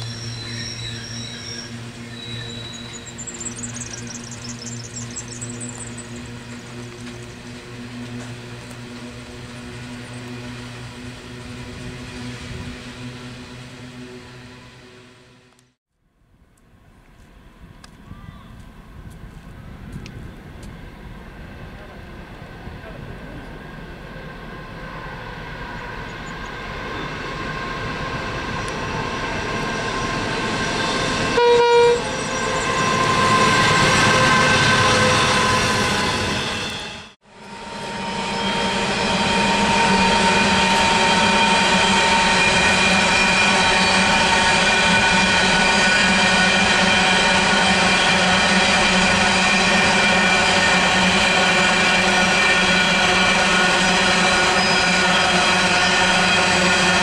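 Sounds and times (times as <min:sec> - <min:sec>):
hopper wagons rolling past: 0:00.0 - 0:14.7
train wheels on rails: 0:00.0 - 0:15.6, 0:16.9 - 0:57.0
diesel locomotive engine droning: 0:00.0 - 0:57.0
train horn toot: 0:31.2 - 0:36.8.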